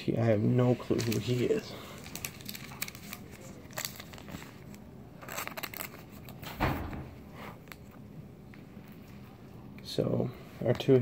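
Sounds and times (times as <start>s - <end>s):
plastic card sleeve crinkling: 0.6s - 6.4s.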